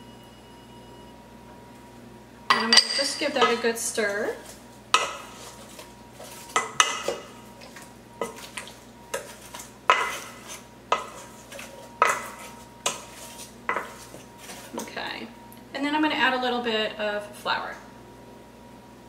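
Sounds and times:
wooden spoon stirring chicken wings: 3.8 - 15.1.

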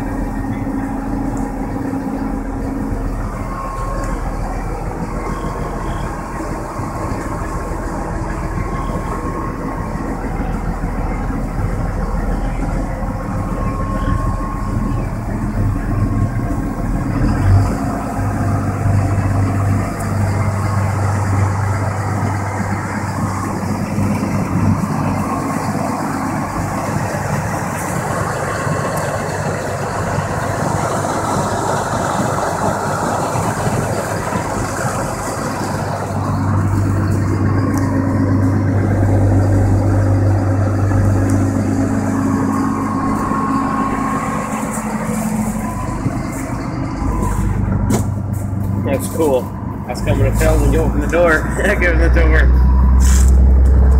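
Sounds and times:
boat engine running: 0.0 - 53.9
water and ice rushing along hull: 0.0 - 53.9.

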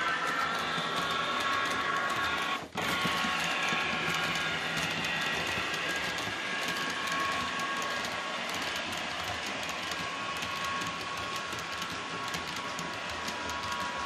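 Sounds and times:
model train wheels clicking: 0.0 - 14.0
model train whine: 0.0 - 14.0.

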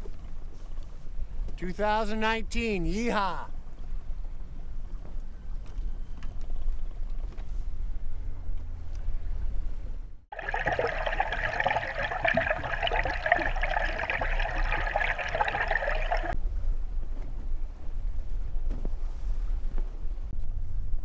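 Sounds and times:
underwater water rushing: 10.3 - 16.4.

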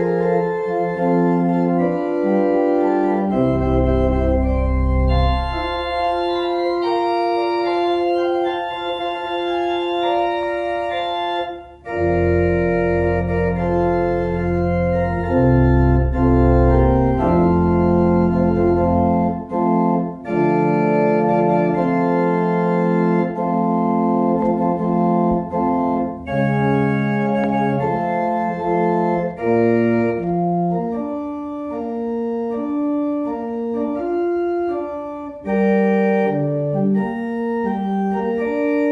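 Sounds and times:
deep organ bass line: 0.0 - 38.9
organ playing slow chords: 0.0 - 38.9.

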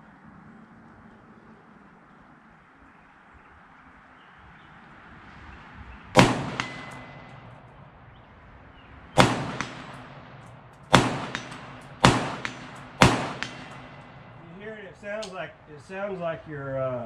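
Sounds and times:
rifle shots: 6.2 - 7.6, 9.2 - 15.4
fainter sharp report: 9.2 - 17.0.

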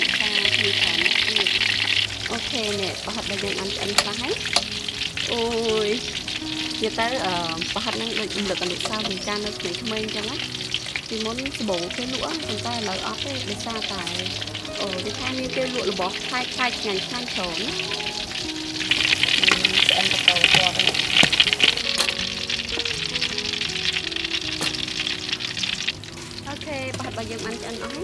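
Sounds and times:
food sizzling in hot oil: 0.0 - 28.0
metal utensil clicking on wok: 0.1 - 6.1, 6.7 - 16.0, 18.9 - 22.3, 24.5 - 25.0.

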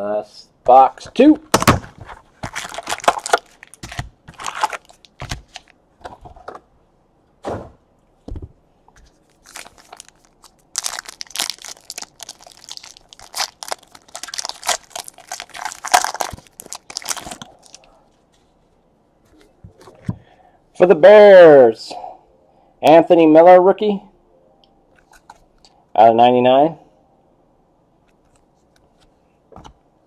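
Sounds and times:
wrapper tearing and crinkling: 1.6 - 5.7, 9.3 - 17.8.

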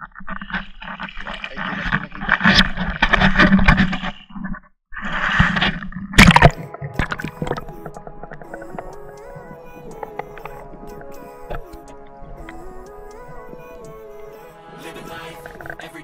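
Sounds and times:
water sloshing and gurgling: 0.0 - 15.9
background music: 6.4 - 16.0.

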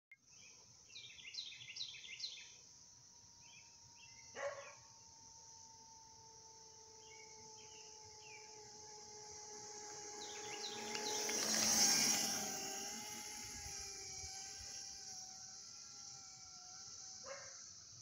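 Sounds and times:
scooter motor whine: 3.0 - 18.0
dog bark: 4.4 - 4.8, 17.3 - 17.6
steady high hiss: 5.2 - 18.0
birds chirping: 6.6 - 15.2.

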